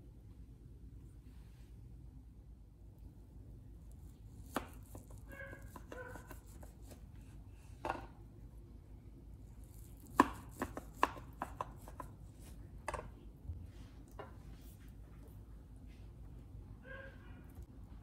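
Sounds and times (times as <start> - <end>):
knife tapping on cutting board: 10.2 - 12.1.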